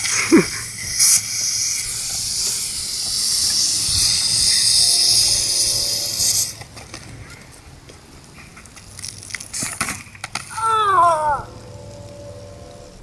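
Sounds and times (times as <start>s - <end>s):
soda foam spraying with loud hiss: 0.0s - 6.6s.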